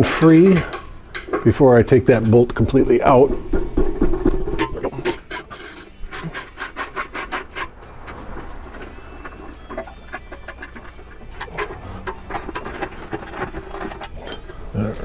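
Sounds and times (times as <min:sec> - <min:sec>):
handling of tool and bolt: 0:03.5 - 0:15.0.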